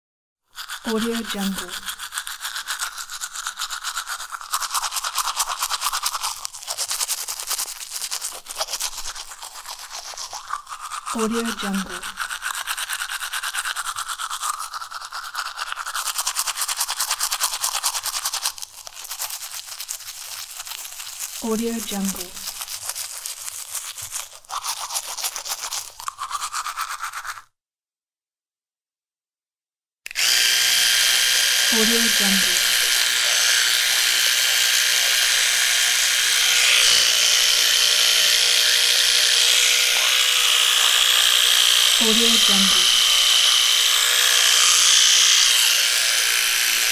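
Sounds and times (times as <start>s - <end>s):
teeth brushing: 0.5s - 27.5s, 31.1s - 46.9s
electric toothbrush buzzing: 0.6s - 27.4s, 30.1s - 46.9s.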